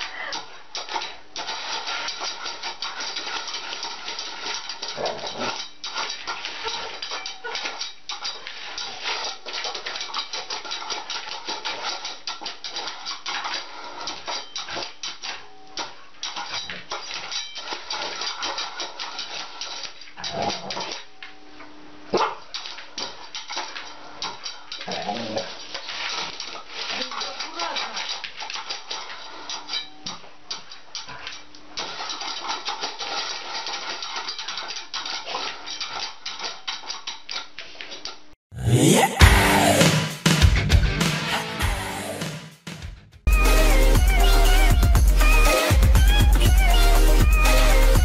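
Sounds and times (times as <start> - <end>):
dog claws scratching on disc: 0.1 - 21.1, 22.1 - 38.2.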